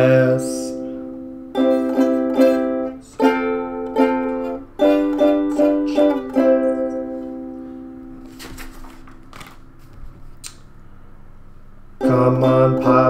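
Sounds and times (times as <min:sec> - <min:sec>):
ukulele strumming chords: 0:00.0 - 0:08.4, 0:12.0 - 0:13.0
book page turning: 0:08.2 - 0:10.4.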